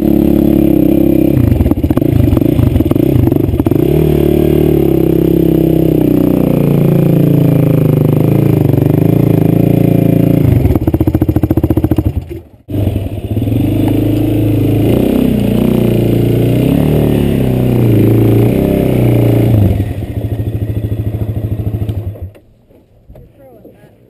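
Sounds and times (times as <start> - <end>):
quad engine idling and revving: 0.0 - 22.4.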